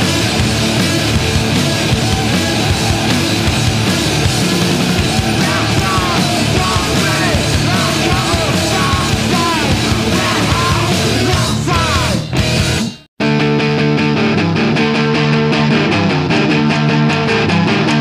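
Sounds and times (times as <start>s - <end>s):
distorted noise rock music: 0.0s - 18.0s
person yelling vocals: 5.1s - 12.2s.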